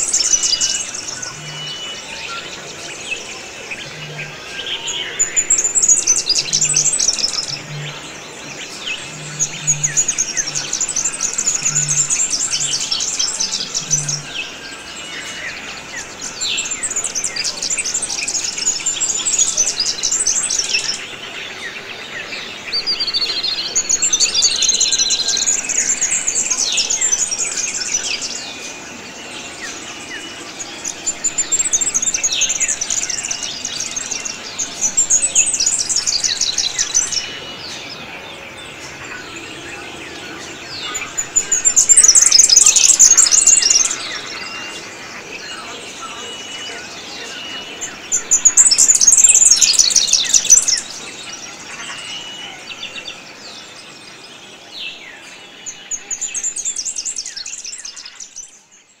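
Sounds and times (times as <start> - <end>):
bird high chirps: 38.8 - 45.0.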